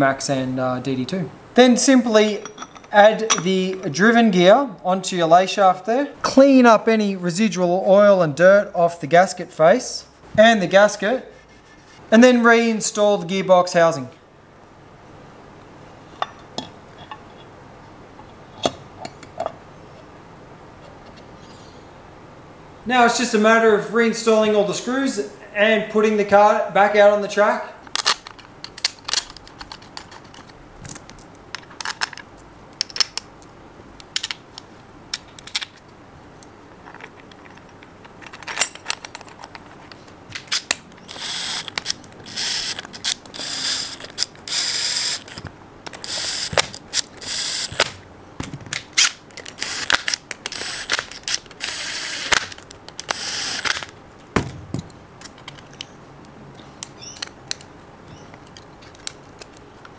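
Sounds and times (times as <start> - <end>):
metal screws clicking: 2.4 - 3.9, 36.9 - 48.0, 48.7 - 53.9
cordless screwdriver whirring: 41.0 - 45.4, 46.0 - 47.9, 49.6 - 53.9.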